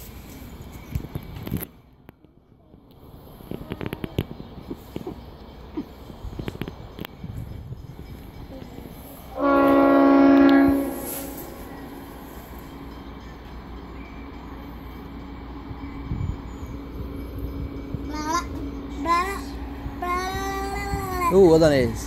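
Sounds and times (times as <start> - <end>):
train horn blast: 9.3 - 12.1.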